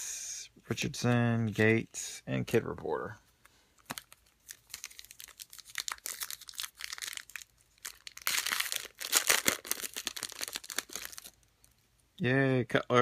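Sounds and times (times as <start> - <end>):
foil wrapper crinkling and tearing: 3.8 - 11.7.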